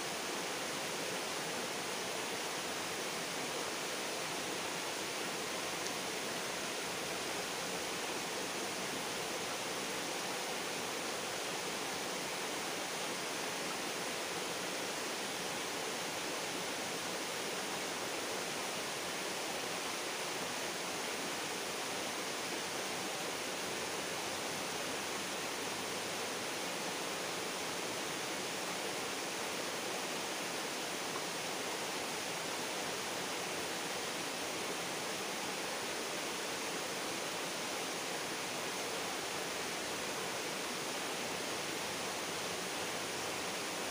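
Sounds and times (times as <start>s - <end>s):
river water rushing: 0.0s - 43.9s.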